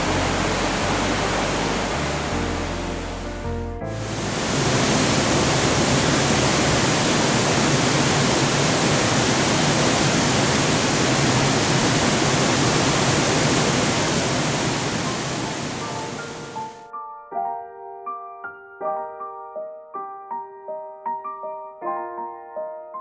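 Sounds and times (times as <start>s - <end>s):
water rushing: 0.0s - 16.8s.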